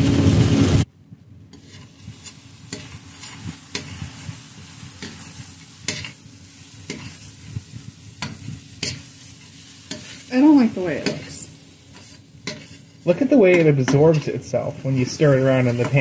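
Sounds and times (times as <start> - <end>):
metal spatula scraping a pan: 1.5 - 16.0
soft sizzling in a pan: 1.5 - 16.0
burst of hissing noise: 1.9 - 13.0, 14.8 - 16.0.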